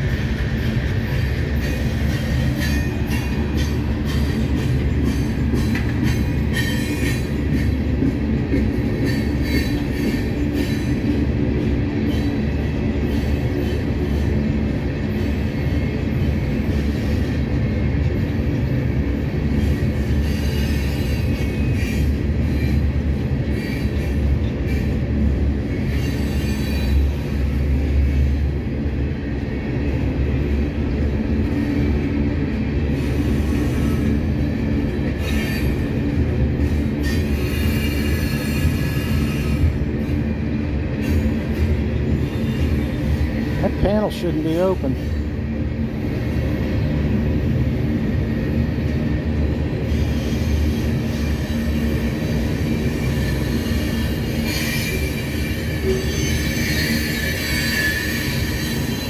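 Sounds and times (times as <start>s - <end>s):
steel wheels rumbling on rail: 0.0s - 59.0s
wheel squeal: 49.9s - 59.0s.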